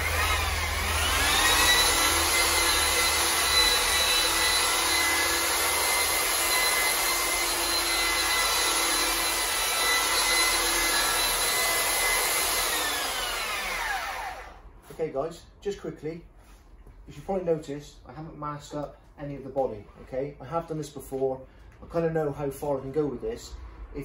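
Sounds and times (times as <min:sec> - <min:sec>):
rotary polisher whining: 0:00.0 - 0:14.6.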